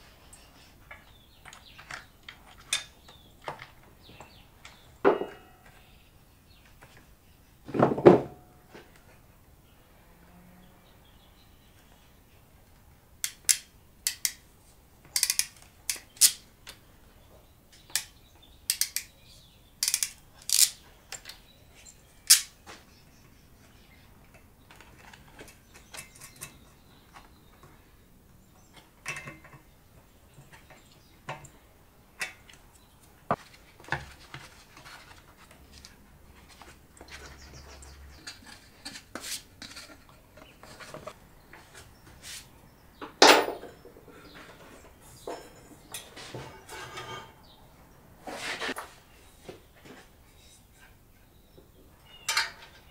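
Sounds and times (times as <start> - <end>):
small metallic clicks and clinks: 15.1 - 16.4, 17.8 - 19.2, 19.8 - 21.4, 25.5 - 26.8.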